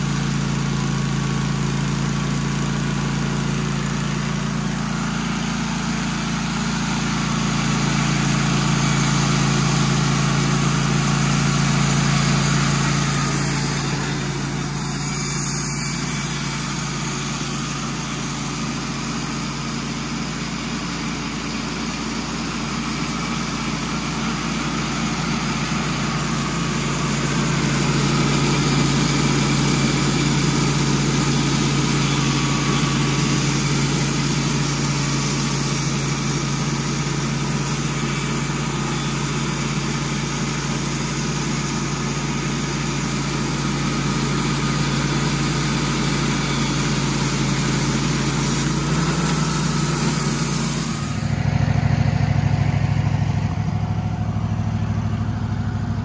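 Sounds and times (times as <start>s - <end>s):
sawmill engine drone: 0.0s - 56.0s
band blade sawing wood: 4.8s - 19.3s, 23.0s - 41.7s, 42.8s - 51.4s.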